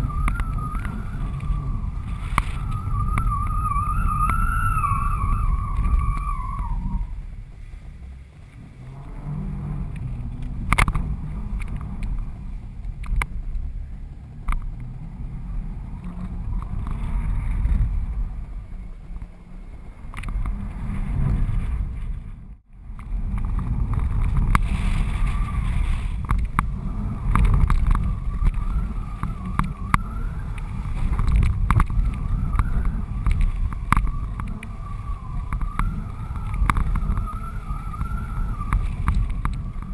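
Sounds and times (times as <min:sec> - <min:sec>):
faint wavering whistle: 0:00.0 - 0:07.2, 0:28.0 - 0:39.9
wind buffeting microphone: 0:00.0 - 0:39.9.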